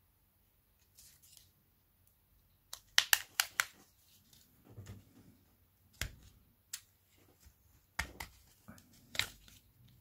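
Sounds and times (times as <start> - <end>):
sharp clicks and taps: 2.7 - 3.8.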